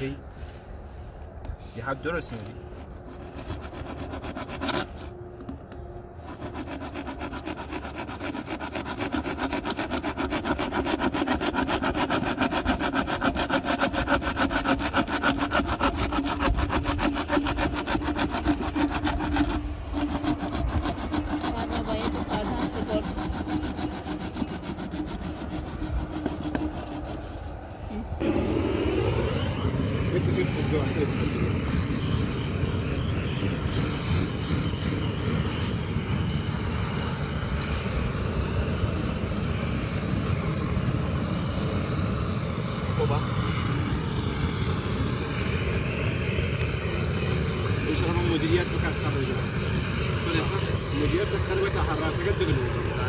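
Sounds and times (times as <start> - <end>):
hacksaw cutting plastic pipe: 3.0 - 5.6, 6.2 - 27.5.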